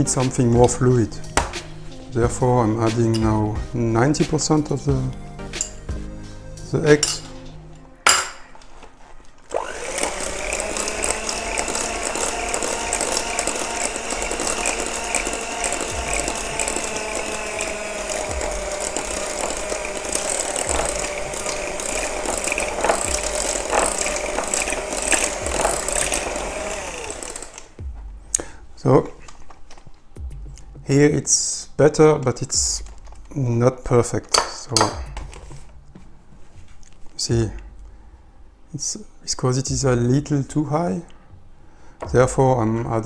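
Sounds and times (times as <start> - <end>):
electric hand mixer rattling: 9.5 - 27.8.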